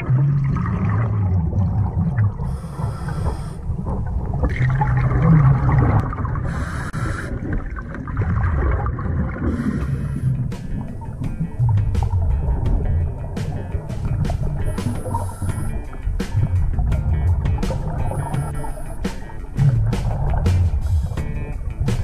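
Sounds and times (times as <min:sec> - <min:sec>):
bubbling gurgling exhalation: 0:00.0 - 0:21.3
regulator hissing inhalations: 0:02.4 - 0:03.7, 0:06.5 - 0:07.3, 0:09.5 - 0:10.7, 0:14.6 - 0:15.8, 0:18.0 - 0:19.2.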